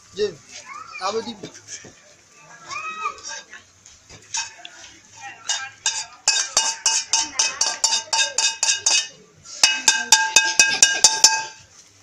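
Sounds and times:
metal bowl clanging: 0:04.3 - 0:04.6, 0:05.4 - 0:11.7.

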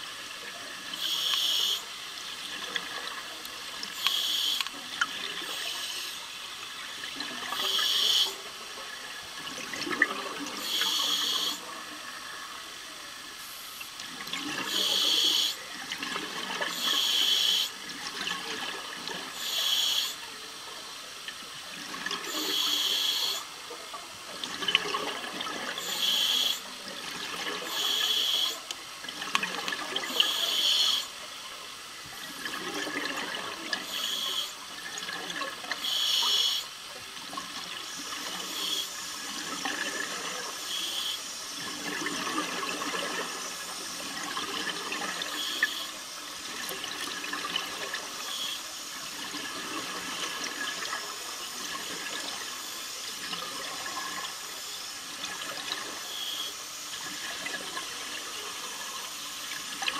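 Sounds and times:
regulator breathing hiss: 0:01.0 - 0:02.0, 0:03.9 - 0:04.8, 0:05.4 - 0:06.4, 0:07.6 - 0:08.4, 0:10.6 - 0:11.6, 0:14.7 - 0:15.7, 0:16.7 - 0:17.8, 0:19.3 - 0:20.2, 0:22.3 - 0:23.5, 0:25.8 - 0:26.7, 0:27.6 - 0:28.7, 0:30.1 - 0:31.1, 0:33.8 - 0:34.6, 0:35.8 - 0:36.7, 0:37.8 - 0:39.2, 0:40.5 - 0:41.6, 0:45.2 - 0:46.2.

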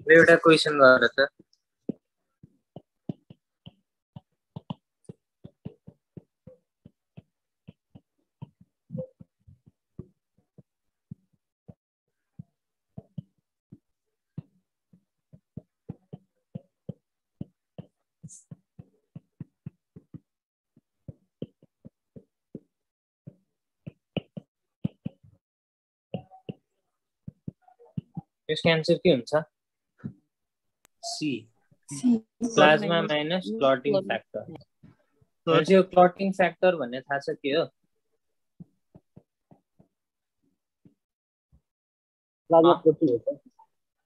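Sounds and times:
stylus tapping on tablet screen: 0:01.4 - 0:11.4, 0:12.2 - 0:25.4, 0:26.2 - 0:28.4, 0:38.6 - 0:40.0.

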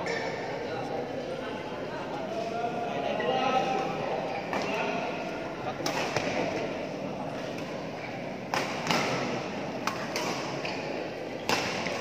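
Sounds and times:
sports hall background noise: 0:00.0 - 0:12.0
rackets striking shuttlecock: 0:08.4 - 0:12.0.

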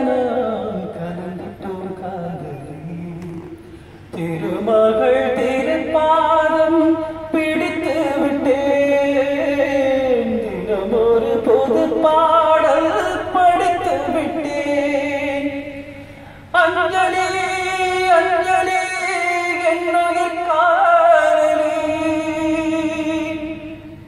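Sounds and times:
man singing into microphone: 0:00.0 - 0:24.0.

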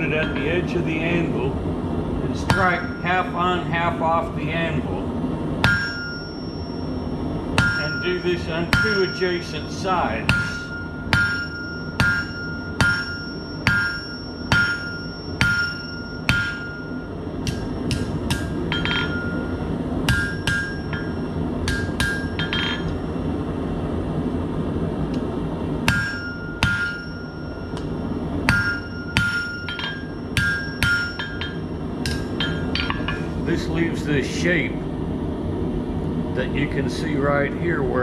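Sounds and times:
hammer striking metal on anvil: 0:02.4 - 0:03.2, 0:05.6 - 0:06.9, 0:07.6 - 0:23.0, 0:25.8 - 0:33.4.

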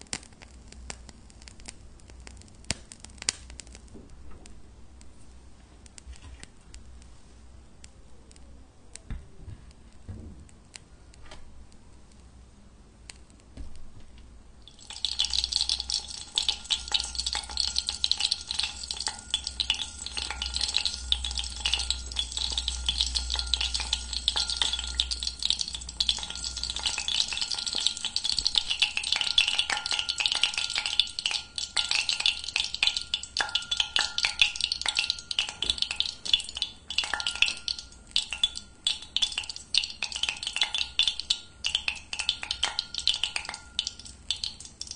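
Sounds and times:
water crackling sizzle: 0:00.0 - 0:09.1, 0:14.6 - 0:44.9
faint steady tones: 0:14.6 - 0:44.8.

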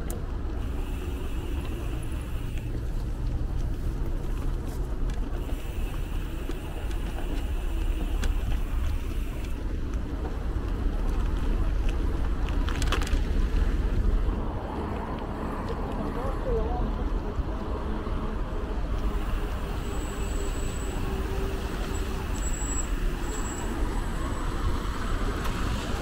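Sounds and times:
wind rumbling on microphone: 0:00.0 - 0:20.0
city traffic noise: 0:00.0 - 0:26.0.

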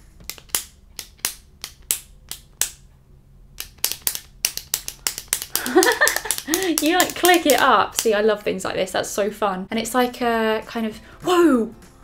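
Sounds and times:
lip pen clicking: 0:00.2 - 0:02.8, 0:03.6 - 0:08.2.

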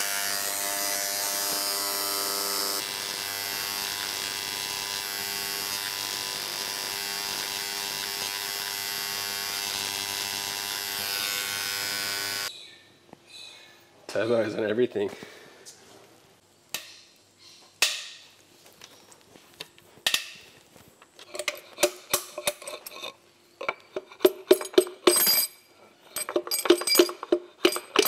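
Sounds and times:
electric engraving pen buzzing: 0:00.0 - 0:12.5.

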